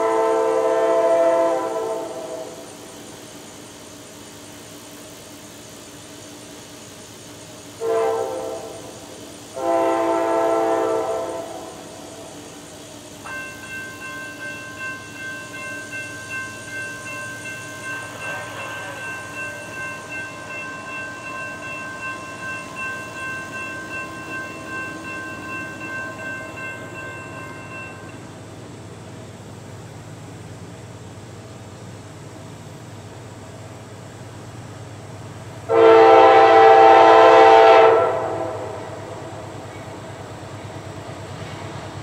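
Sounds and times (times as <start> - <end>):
train horn blasts: 0.0 - 2.6, 7.8 - 8.9, 9.6 - 12.0, 35.7 - 39.4
crossing warning bell ringing: 10.7 - 28.5.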